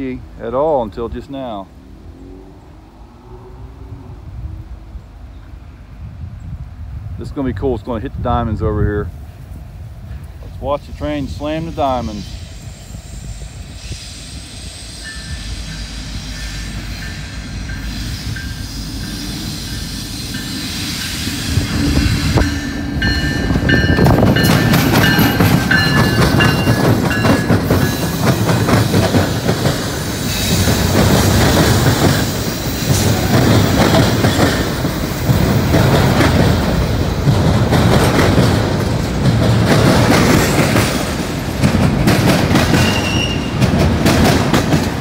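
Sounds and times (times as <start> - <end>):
freight train rumble: 0.0 - 45.0
train wheels clattering and banging: 15.3 - 45.0.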